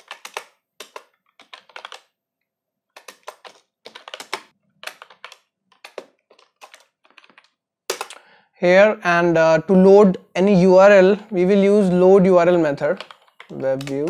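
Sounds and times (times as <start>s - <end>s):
keyboard typing clicks: 12.9s - 14.0s.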